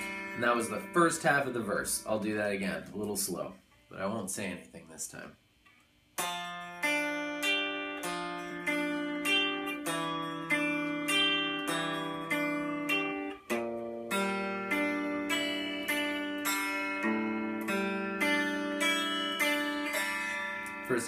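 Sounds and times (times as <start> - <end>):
electric guitar arpeggio: 0.0 - 2.3, 6.2 - 21.0.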